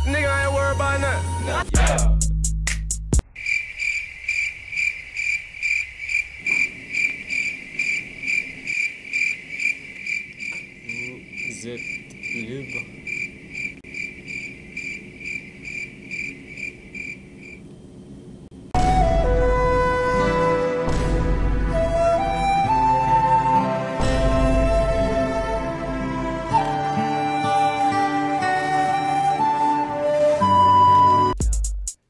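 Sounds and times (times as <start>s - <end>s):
crickets chirping: 3.2s - 18.3s.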